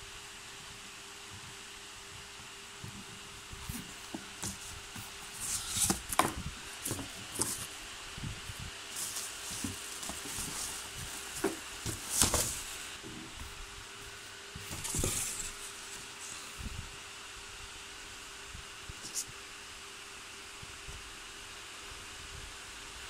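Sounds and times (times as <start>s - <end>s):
cardboard box knocks: 9.5s - 12.6s.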